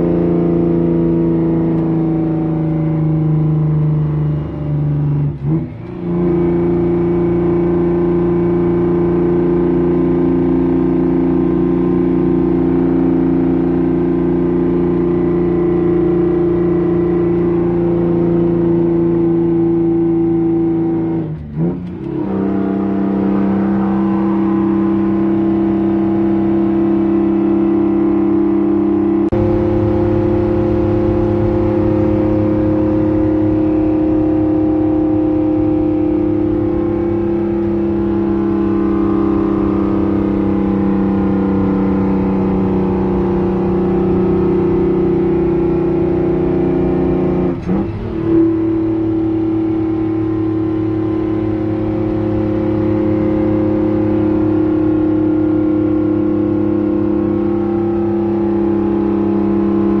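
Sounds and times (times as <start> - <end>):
diesel truck engine from cab: 29.2 - 59.2.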